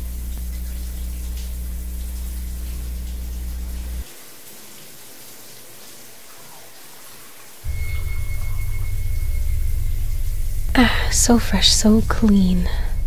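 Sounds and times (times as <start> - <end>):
deep rumbling drone: 0.0 - 4.0, 7.7 - 13.0
water running into bathtub: 0.0 - 13.0
loud low drone: 7.7 - 13.0.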